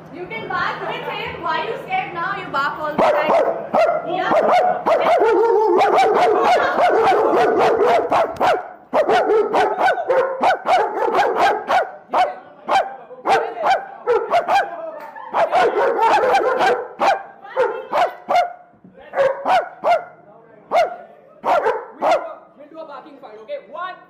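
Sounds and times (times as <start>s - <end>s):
dog barking: 3.0s - 22.4s
man imitating barking: 3.3s - 17.2s.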